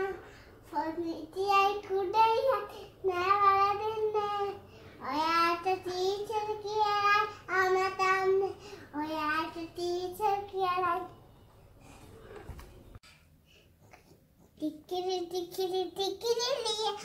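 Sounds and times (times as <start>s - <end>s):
girl singing unaccompanied: 0.0s - 11.2s, 14.6s - 17.0s.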